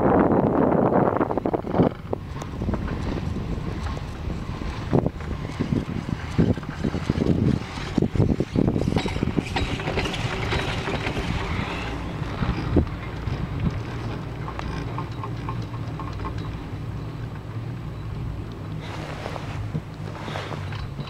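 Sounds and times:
wind noise on microphone: 0:00.0 - 0:21.0
chairlift rope over roller knocks: 0:06.4 - 0:16.6.

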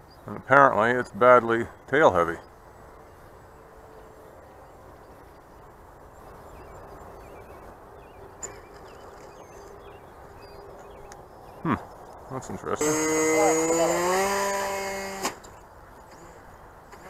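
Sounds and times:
bird chirps: 0:00.0 - 0:12.8
low outdoor rush: 0:00.0 - 0:17.0
distant model plane motor hum: 0:12.8 - 0:17.0.

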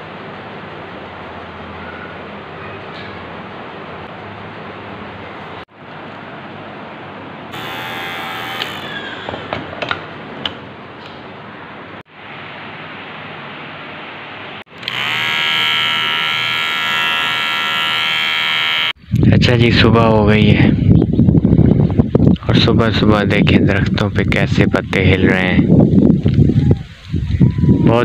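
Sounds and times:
electric hair clipper buzzing: 0:07.5 - 0:09.2, 0:14.7 - 0:19.0.

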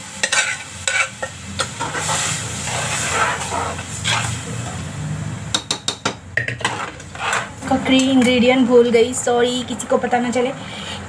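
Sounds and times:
food sizzling in a pot: 0:00.0 - 0:08.0.

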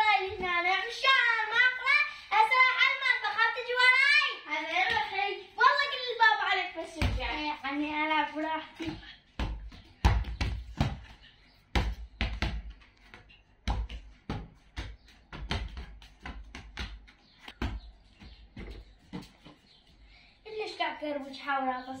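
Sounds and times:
football bouncing: 0:04.6 - 0:05.2, 0:06.8 - 0:07.7, 0:08.7 - 0:19.6.

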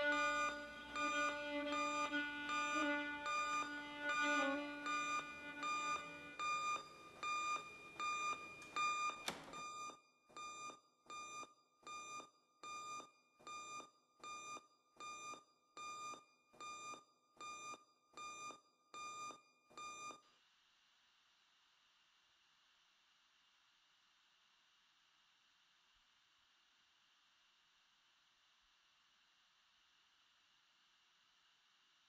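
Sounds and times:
electronic alarm beeping: 0:00.0 - 0:20.2
door shutting: 0:08.4 - 0:09.7.

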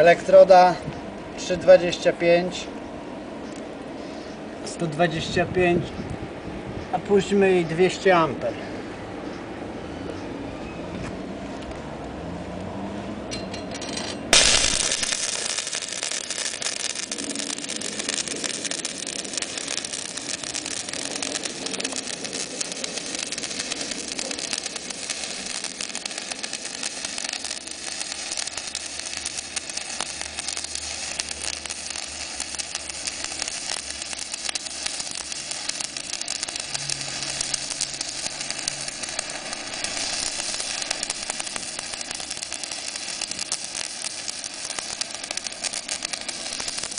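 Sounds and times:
welding arc crackling hiss: 0:13.4 - 0:46.9
arc striking crack: 0:14.1 - 0:46.9.

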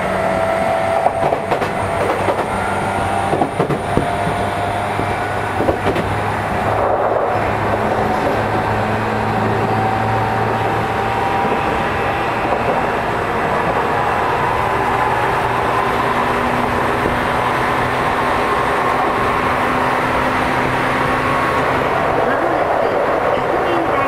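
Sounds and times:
traction motor whine rising: 0:00.0 - 0:22.4
train rail running noise: 0:00.0 - 0:24.0.

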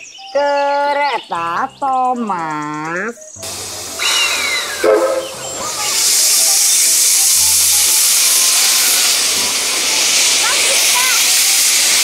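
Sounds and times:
steam locomotive hissing steam: 0:03.4 - 0:12.0.

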